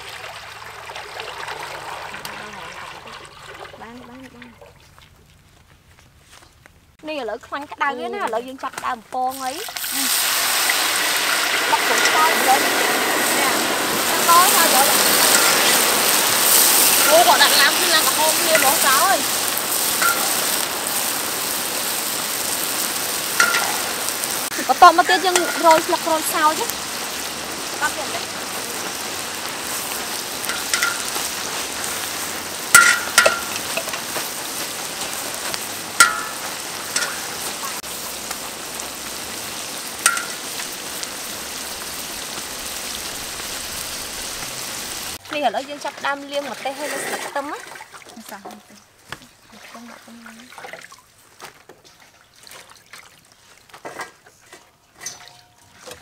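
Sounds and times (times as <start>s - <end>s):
oil sizzling in a wok: 0.0s - 4.0s, 7.3s - 49.4s, 54.7s - 56.0s
water splashing and dripping: 0.0s - 5.4s, 7.4s - 56.0s
strainer clinking against wok: 23.4s - 24.0s, 30.5s - 31.2s, 32.7s - 34.1s, 36.0s - 37.7s, 55.0s - 56.0s.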